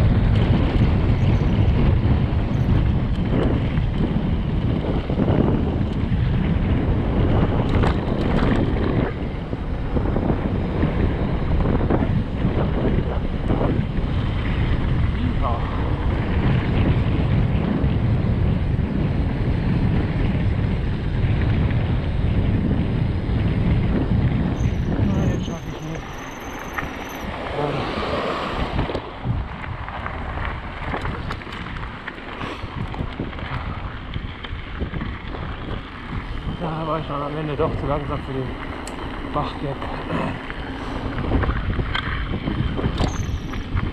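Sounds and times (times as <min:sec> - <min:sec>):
bike rolling over dirt trail: 0:00.0 - 0:43.9
wind buffeting microphone: 0:00.0 - 0:43.9
sharp clicks and rattles: 0:07.5 - 0:09.0, 0:30.0 - 0:43.9.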